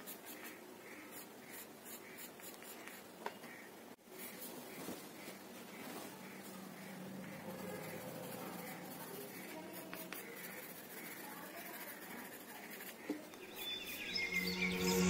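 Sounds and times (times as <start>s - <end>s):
pencil scratching on paper: 0.0s - 3.1s, 4.0s - 4.8s, 6.2s - 13.7s
music: 13.5s - 15.0s.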